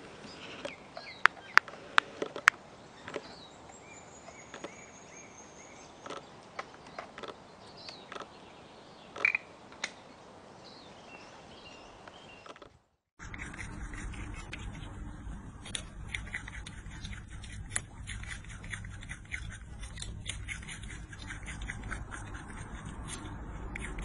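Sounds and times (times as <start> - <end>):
sharp clicks: 6.0 - 8.3.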